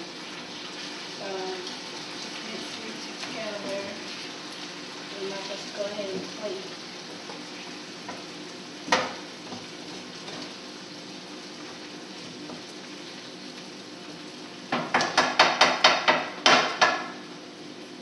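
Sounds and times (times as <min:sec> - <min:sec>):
meat sizzling in skillet: 0:00.0 - 0:18.0
utensil knocking on pan: 0:14.7 - 0:17.2.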